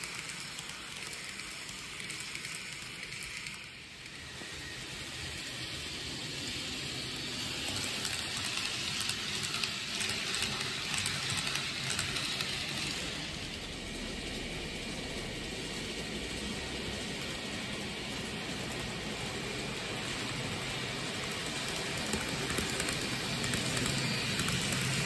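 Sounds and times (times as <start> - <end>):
model train rolling rattle: 0.0 - 25.0
clicking at rail joints: 21.2 - 25.0.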